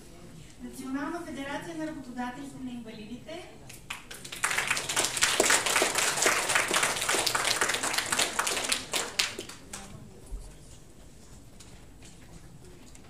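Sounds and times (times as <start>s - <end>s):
audience applauding: 3.8s - 9.9s.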